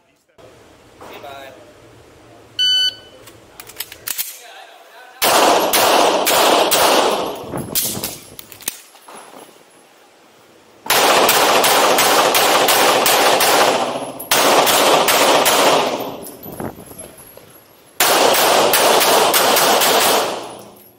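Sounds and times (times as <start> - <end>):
handgun shots: 5.2 - 8.8, 10.9 - 16.2, 18.0 - 20.8.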